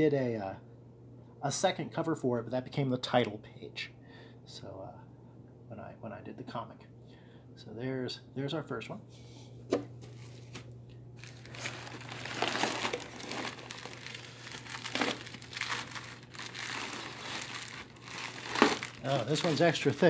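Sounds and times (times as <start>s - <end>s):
packing paper crinkling: 10.1s - 20.0s.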